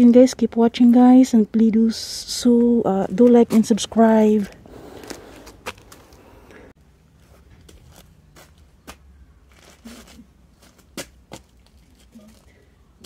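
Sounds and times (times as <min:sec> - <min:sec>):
footsteps on gravel: 0:02.6 - 0:12.6.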